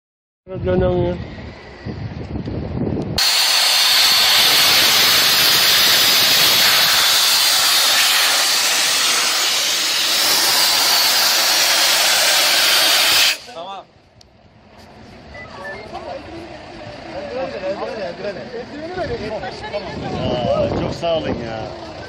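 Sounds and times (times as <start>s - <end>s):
loud steady hiss: 3.2s - 13.7s.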